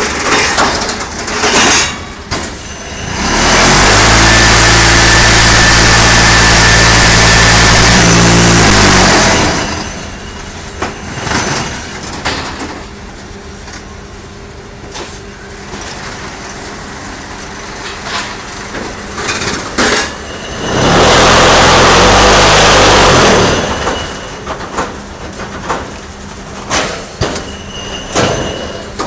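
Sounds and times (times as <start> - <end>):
machine clanks and knocks: 0.0 - 2.7, 10.8 - 12.9, 17.8 - 20.3, 23.8 - 29.0
machine droning: 2.5 - 15.8, 20.3 - 24.6.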